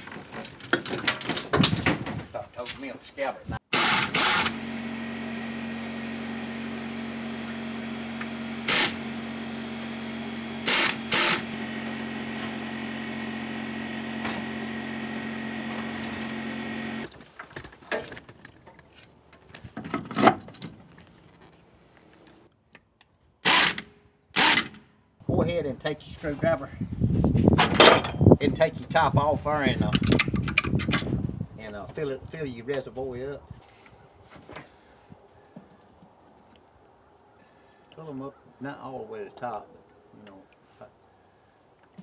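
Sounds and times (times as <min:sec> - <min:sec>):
small motor humming: 0:03.8 - 0:17.1.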